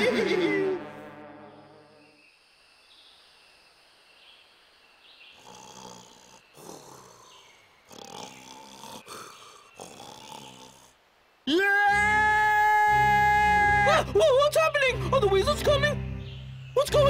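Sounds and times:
cartoon rooster snoring: 5.4 - 11.0.

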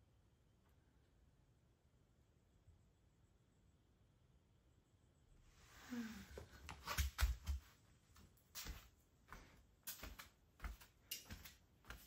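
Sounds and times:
footsteps on tatami mats: 6.4 - 12.0.

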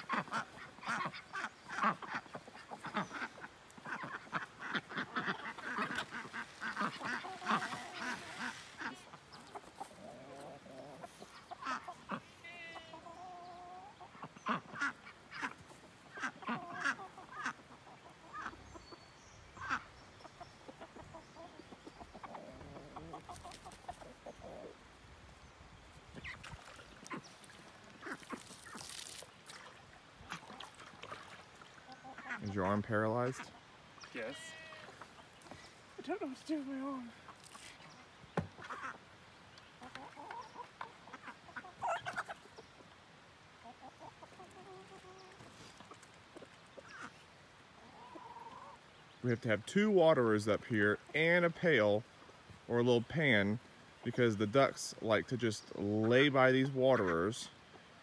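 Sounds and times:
ducks quacking: 0.0 - 24.8, 26.2 - 37.7, 38.4 - 39.1, 39.8 - 42.9, 43.6 - 46.0, 46.8 - 47.2
chickens clucking: 0.0 - 25.0, 26.1 - 48.8.

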